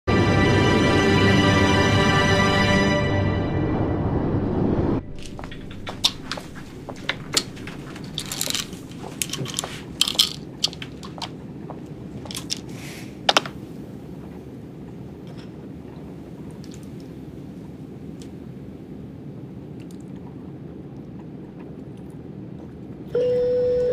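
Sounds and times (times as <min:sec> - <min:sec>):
airliner cabin hum: 0:00.1 - 0:23.9
pill bottle clicks and rattles: 0:08.1 - 0:11.2.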